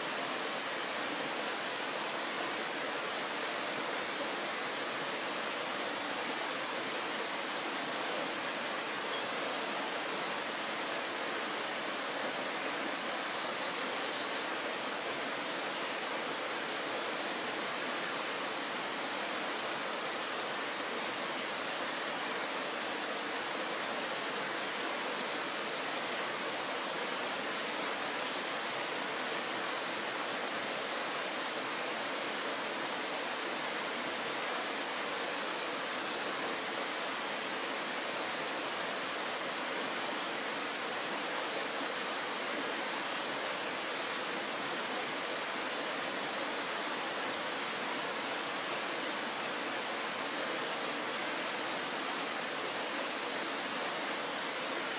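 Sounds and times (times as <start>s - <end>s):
stream rushing over stones: 0.0s - 54.9s.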